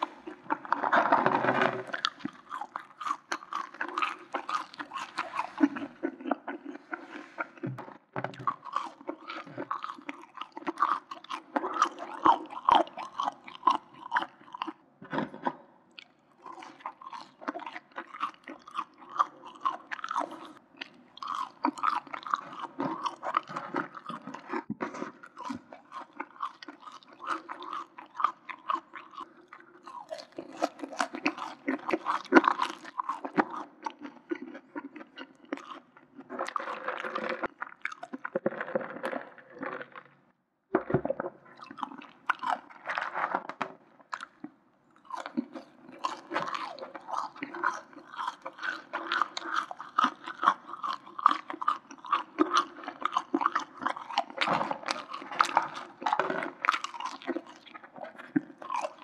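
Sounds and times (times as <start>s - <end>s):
chewing fries: 0.0s - 40.2s, 40.8s - 59.0s.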